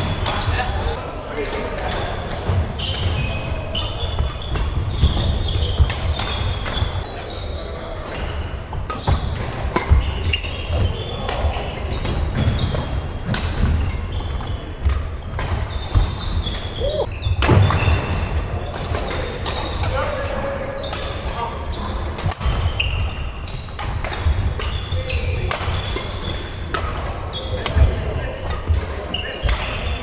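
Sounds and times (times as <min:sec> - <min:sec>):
shoe squeaks on court floor: 0:02.8 - 0:18.8, 0:20.4 - 0:23.6, 0:24.6 - 0:26.6, 0:27.3 - 0:30.0
racket hitting shuttlecock: 0:08.9 - 0:14.0, 0:25.5 - 0:28.8.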